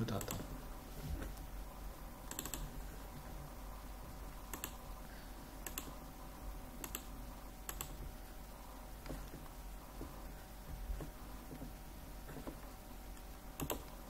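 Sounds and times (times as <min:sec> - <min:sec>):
faint low electrical hum: 0:00.0 - 0:14.0
computer mouse clicking: 0:00.2 - 0:00.5, 0:02.2 - 0:02.8, 0:04.3 - 0:04.9, 0:05.6 - 0:06.0, 0:06.8 - 0:08.1, 0:12.4 - 0:14.0.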